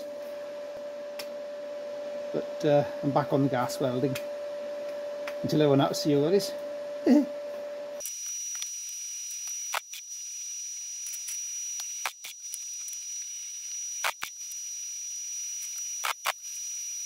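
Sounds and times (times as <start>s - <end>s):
welder crackles: 8.0s - 17.0s
welder hiss with high whine: 8.0s - 17.0s.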